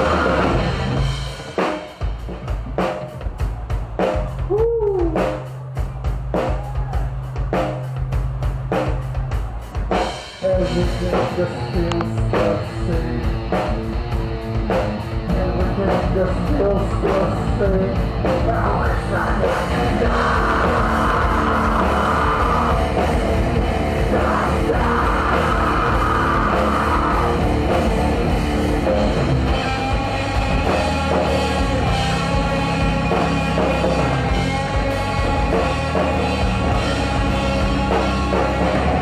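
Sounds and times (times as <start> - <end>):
heavy rock band playing: 0.0 - 39.0.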